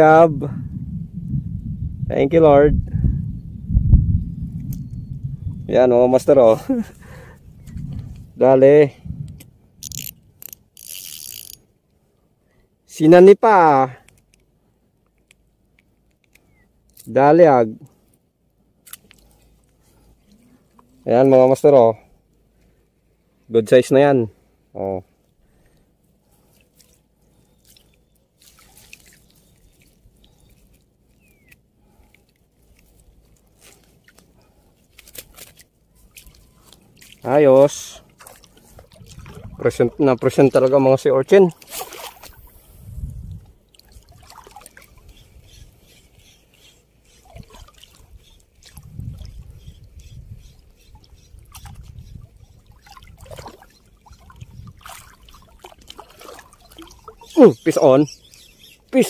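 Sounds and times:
small clicks: 0:09.8 - 0:11.6
water splashing and dripping: 0:25.6 - 0:42.6, 0:43.3 - 0:59.0.

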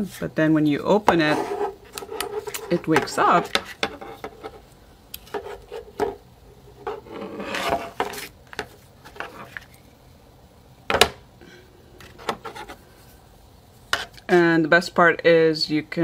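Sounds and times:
rubbing rustle: 0:06.8 - 0:09.7.

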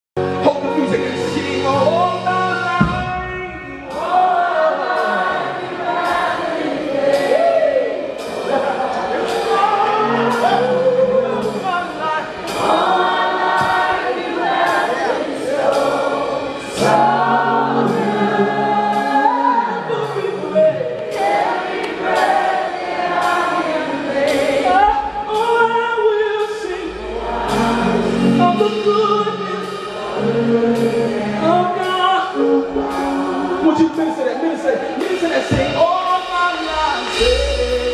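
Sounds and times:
steady beat: 0:00.2 - 0:37.9
voices singing gospel: 0:00.2 - 0:37.9
sustained keyboard chords: 0:08.0 - 0:37.9.

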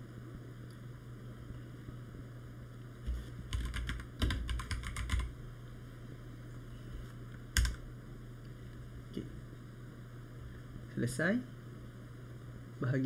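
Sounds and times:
keyboard typing: 0:03.5 - 0:05.3, 0:07.5 - 0:07.8.

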